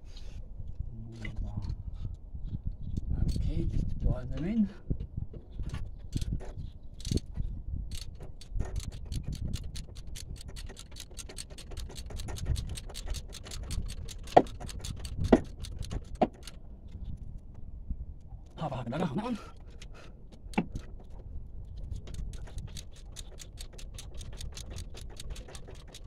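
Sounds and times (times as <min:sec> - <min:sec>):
hand ratchet clicking: 0:07.9 - 0:16.6, 0:21.8 - 0:26.0.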